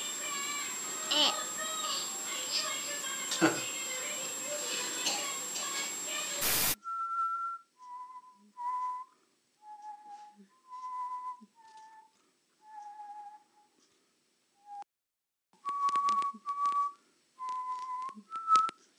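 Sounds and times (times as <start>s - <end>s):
person whistling short notes: 6.8s - 13.7s, 15.6s - 18.9s.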